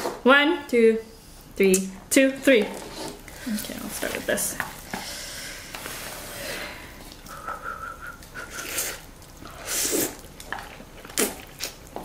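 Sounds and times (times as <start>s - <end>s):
thin whistle-like tone: 7.3s - 8.6s
noodles being slurped: 8.3s - 12.0s.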